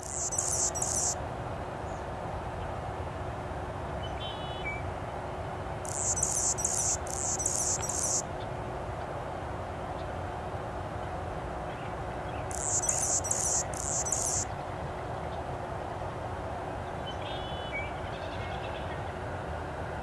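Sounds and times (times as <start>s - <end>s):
background hiss: 0.0s - 1.2s, 5.8s - 8.3s, 12.5s - 14.5s
hummingbird singing: 0.0s - 1.2s, 5.9s - 8.2s, 12.5s - 14.5s.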